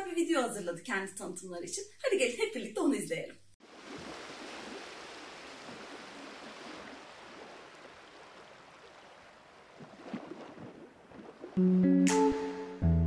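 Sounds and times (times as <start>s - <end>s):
acoustic guitar music: 11.6s - 13.0s.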